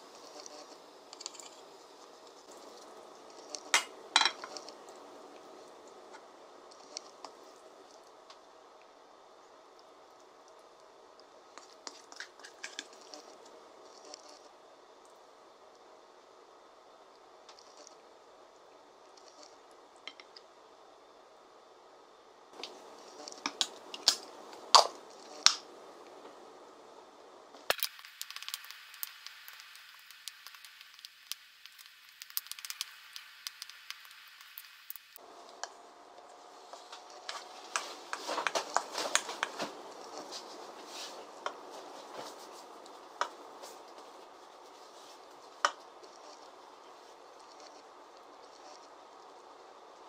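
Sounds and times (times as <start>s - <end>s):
food squishing: 27.5s - 49.6s.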